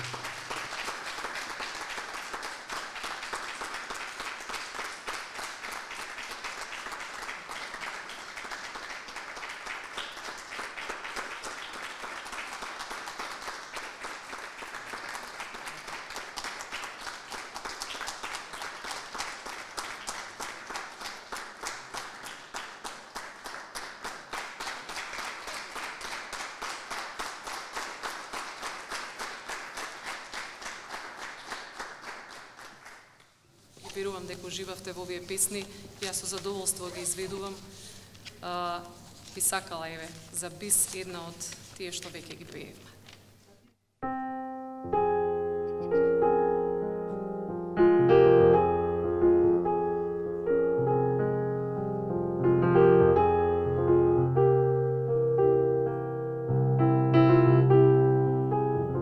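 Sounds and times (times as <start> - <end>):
audience applauding: 0.0 - 33.2.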